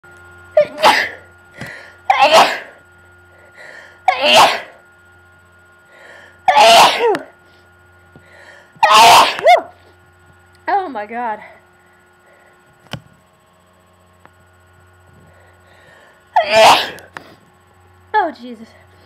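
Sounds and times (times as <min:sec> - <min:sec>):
person sneezing: 0:00.6 - 0:01.2, 0:02.1 - 0:02.8, 0:04.1 - 0:04.8, 0:06.5 - 0:07.3, 0:08.8 - 0:09.8, 0:16.4 - 0:17.1.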